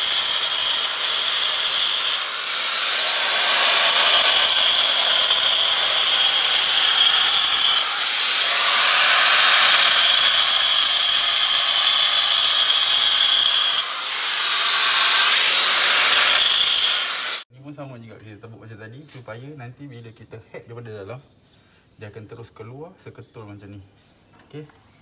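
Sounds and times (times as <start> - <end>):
angle grinder cutting into wall: 0.0 - 17.5.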